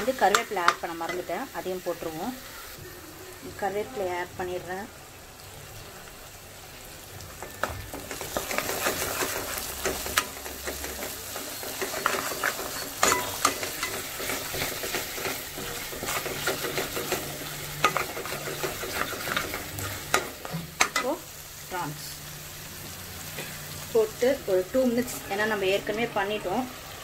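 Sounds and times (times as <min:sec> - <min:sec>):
paste sizzling in oil: 0:00.0 - 0:27.0
spatula scraping pan: 0:07.4 - 0:21.2.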